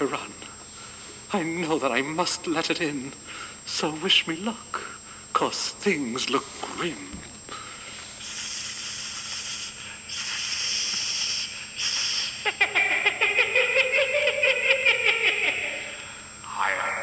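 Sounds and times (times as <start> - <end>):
long hisses: 7.5 - 12.6.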